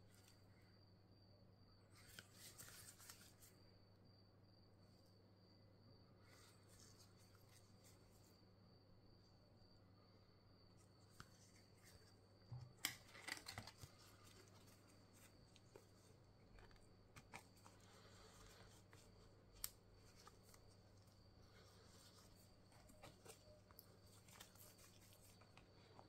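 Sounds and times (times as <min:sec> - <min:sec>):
faint steady hum: 0:00.0 - 0:26.0
plastic cards clicking and scraping: 0:11.1 - 0:26.0.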